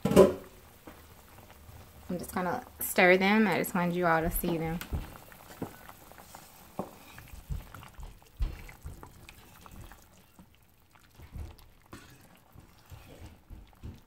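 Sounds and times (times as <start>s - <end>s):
liquid sloshing in pot: 2.8s - 14.0s.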